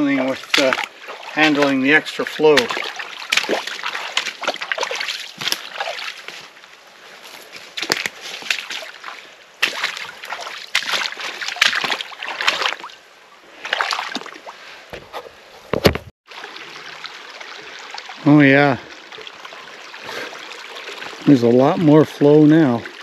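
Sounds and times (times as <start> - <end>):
boots squelching through water and mud: 0.0 - 13.0, 13.6 - 14.5, 19.1 - 22.0.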